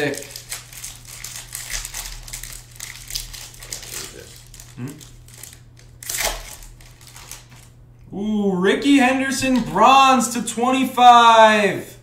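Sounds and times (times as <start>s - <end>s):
foil wrappers crinkling: 0.0s - 7.8s
man murmuring: 3.9s - 5.0s, 8.1s - 10.1s.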